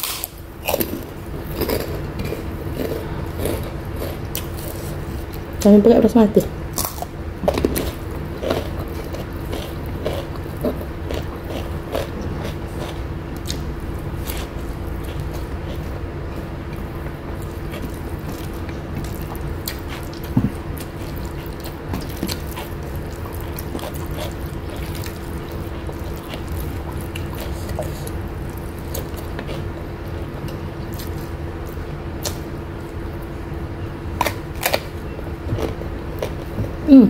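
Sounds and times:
steady low hum: 0:00.0 - 0:37.0
chewing: 0:06.8 - 0:33.0.

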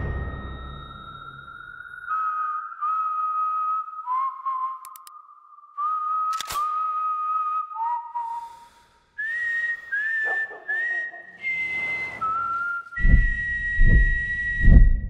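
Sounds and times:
deep booming hits: 0:00.0 - 0:01.8, 0:13.0 - 0:15.0
sharp bang: 0:00.0 - 0:01.9
slow whistled melody: 0:00.0 - 0:15.0.

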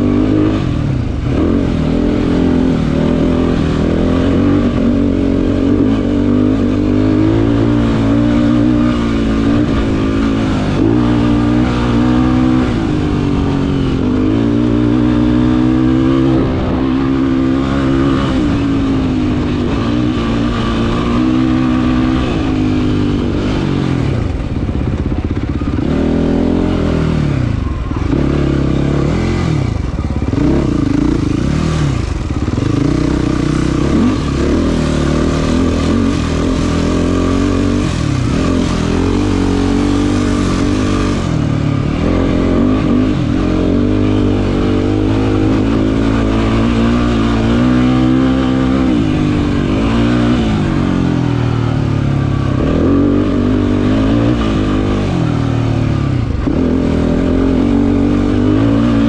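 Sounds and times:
quad engine revving: 0:00.0 - 0:59.0.

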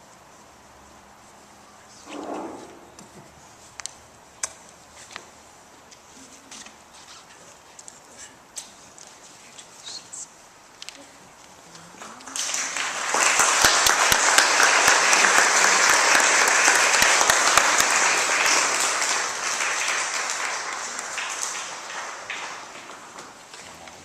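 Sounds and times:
congregation applauding: 0:12.0 - 0:23.5.

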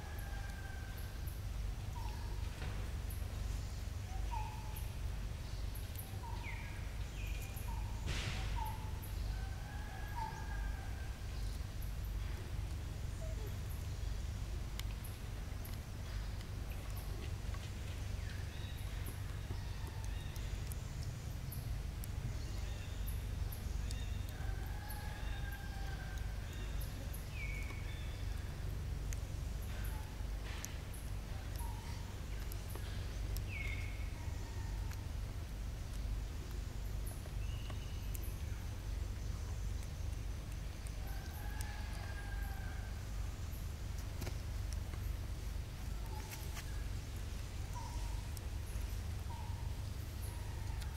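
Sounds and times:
steady low rumble: 0:00.0 - 0:50.9
faint clicks: 0:14.7 - 0:24.4, 0:25.3 - 0:34.0, 0:34.8 - 0:49.4.

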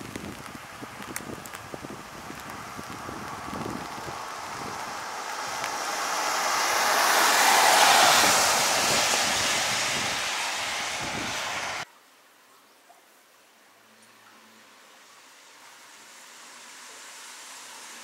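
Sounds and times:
vehicle tyres hissing on wet road: 0:00.0 - 0:11.9, 0:14.7 - 0:18.0
faint background hiss: 0:11.8 - 0:18.0.

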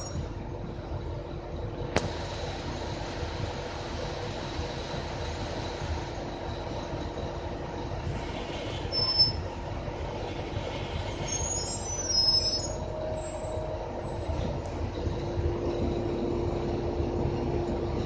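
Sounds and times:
bus interior rumble and drone: 0:00.0 - 0:18.0.

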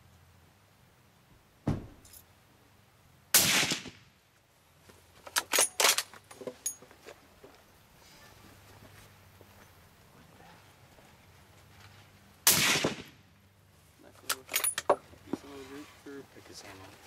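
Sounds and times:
dull thump: 0:01.6 - 0:02.1
suppressed rifle shot: 0:03.3 - 0:04.0, 0:12.4 - 0:13.2.

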